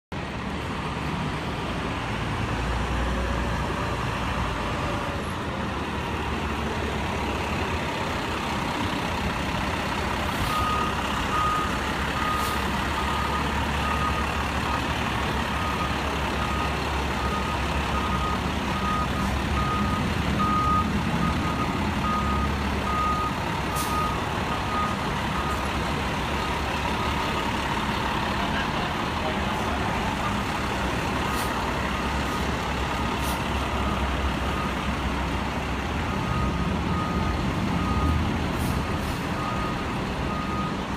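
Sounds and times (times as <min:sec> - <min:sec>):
diesel engine running: 0:00.1 - 0:40.9
reversing alarm beeping: 0:10.3 - 0:25.7, 0:32.9 - 0:34.9, 0:36.1 - 0:38.2, 0:39.3 - 0:40.9.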